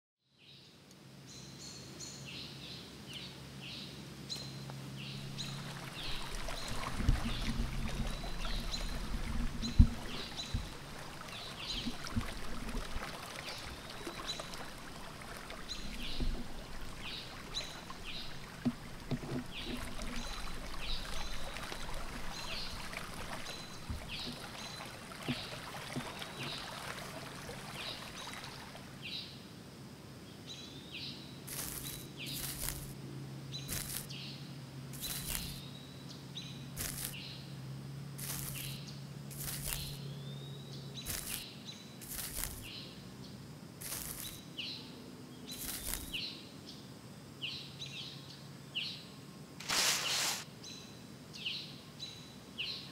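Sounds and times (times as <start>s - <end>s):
birds chirping: 3.1s - 29.3s, 35.0s - 35.8s, 38.2s - 43.0s
river water flowing and splashing: 3.4s - 29.4s, 31.5s - 33.0s, 34.8s - 35.7s, 36.4s - 44.8s, 45.5s - 46.4s, 49.5s - 50.8s.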